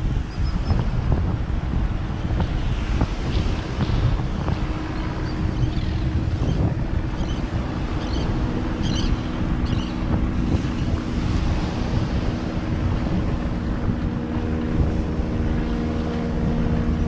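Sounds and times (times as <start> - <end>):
surf washing: 0.0 - 17.0
wind buffeting microphone: 0.0 - 17.0.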